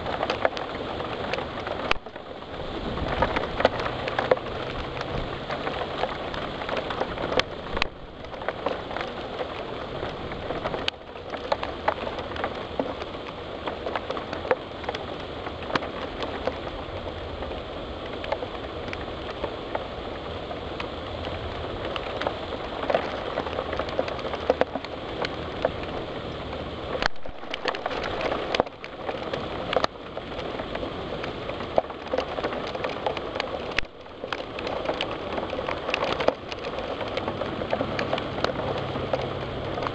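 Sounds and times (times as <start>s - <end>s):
heavy rain on window pane: 0.0s - 39.9s.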